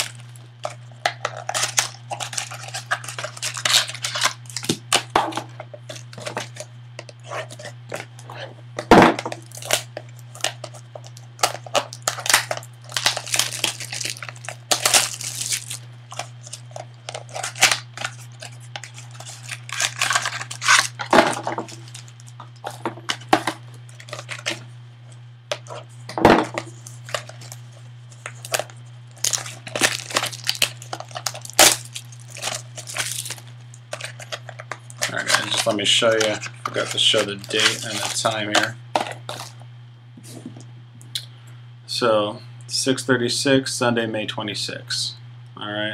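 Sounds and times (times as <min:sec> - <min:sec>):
foil wrappers crinkling: 0:00.0 - 0:06.7, 0:09.2 - 0:24.6, 0:26.6 - 0:39.6
steady low hum: 0:00.0 - 0:45.9
cardboard tearing: 0:01.2 - 0:05.0, 0:11.4 - 0:22.1, 0:28.3 - 0:38.4.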